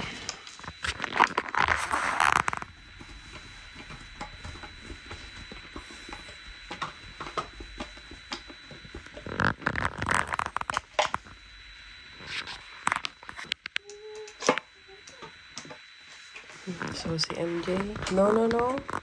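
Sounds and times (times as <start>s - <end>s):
scraping rustle: 0.0s - 13.5s.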